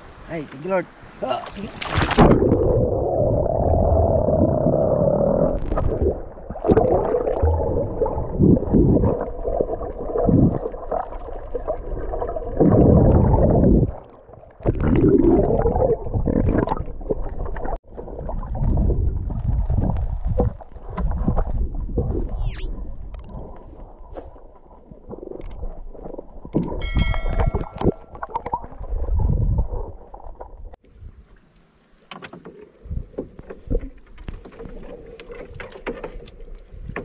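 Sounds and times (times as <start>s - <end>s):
underwater rumbling and gurgling: 2.0s - 31.3s.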